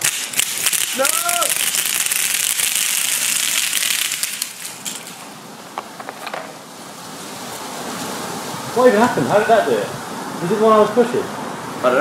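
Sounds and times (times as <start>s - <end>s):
mousetraps snapping: 0.0s - 5.3s.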